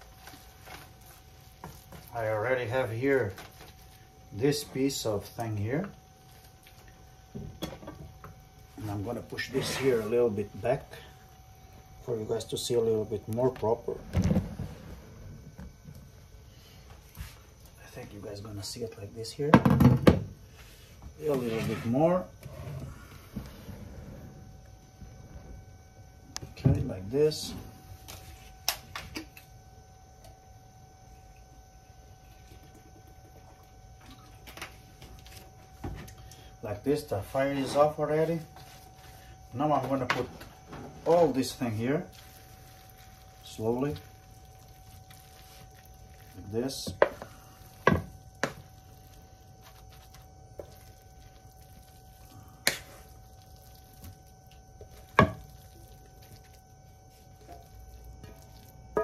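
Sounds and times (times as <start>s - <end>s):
faint electrical hum: 0.0s - 59.0s
wooden spoon scraping a pan: 9.4s - 10.2s.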